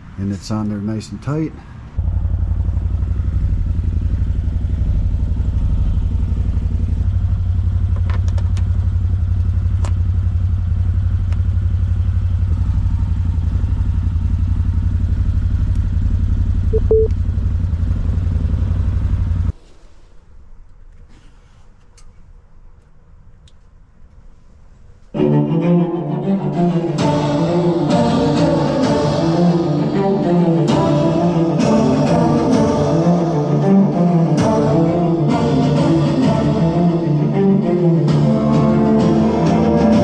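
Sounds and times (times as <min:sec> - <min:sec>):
utility vehicle engine idling: 0:01.6 - 0:19.6.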